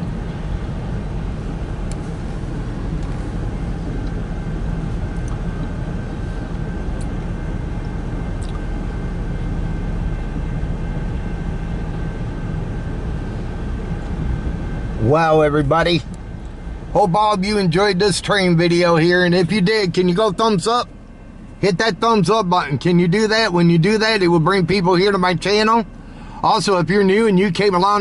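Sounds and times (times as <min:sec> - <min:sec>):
muffled train wheels rumbling: 0:00.0 - 0:23.5.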